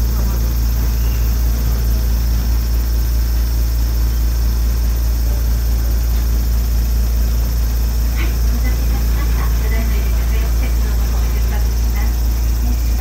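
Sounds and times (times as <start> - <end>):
train diesel engine humming: 0.0 - 13.0.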